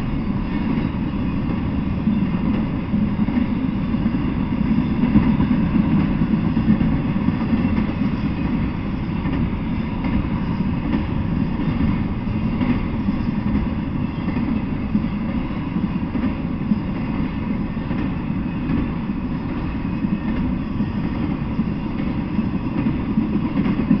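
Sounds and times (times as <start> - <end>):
freight train wheels rumbling: 0.0 - 24.0.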